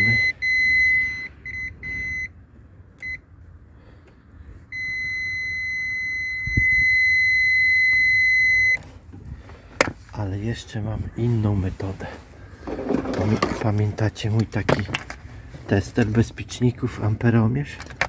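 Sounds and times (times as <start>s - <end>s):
multimeter continuity beeps: 0.0s - 2.4s, 4.7s - 8.8s.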